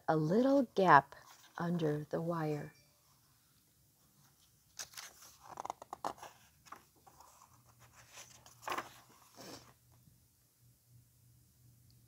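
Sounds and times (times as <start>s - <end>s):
paper page turning: 4.7s - 9.7s.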